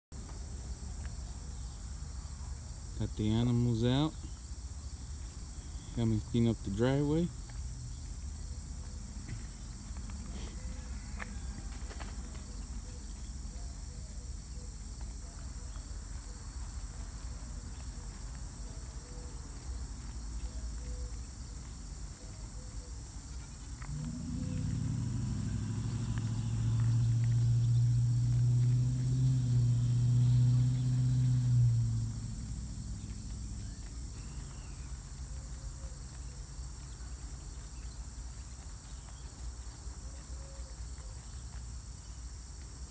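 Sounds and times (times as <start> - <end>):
insects chirping: 0.2 - 42.9.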